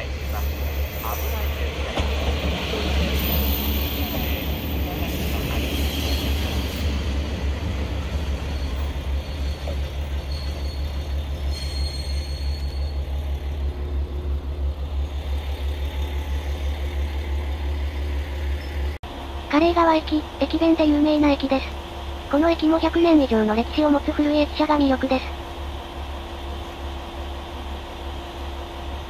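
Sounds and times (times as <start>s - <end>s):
diesel railcar engine idling: 0.0s - 29.0s
diesel railcar pulling in: 0.0s - 29.0s
faint high squeal: 8.4s - 13.1s.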